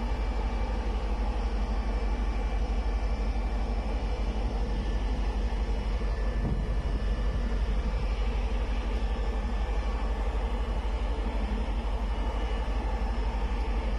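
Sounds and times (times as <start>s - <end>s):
wind buffeting microphone: 6.0s - 8.8s.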